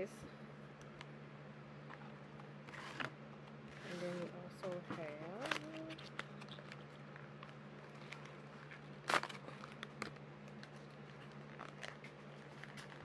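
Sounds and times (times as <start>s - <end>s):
low steady hum: 0.0s - 13.0s
cardboard and plastic rustling: 1.8s - 13.0s
cardboard ripping: 7.9s - 13.0s.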